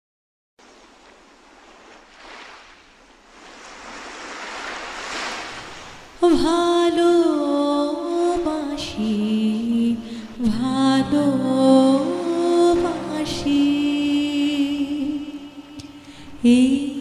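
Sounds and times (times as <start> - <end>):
ocean waves washing in: 0.6 - 15.5
background music: 6.4 - 17.0.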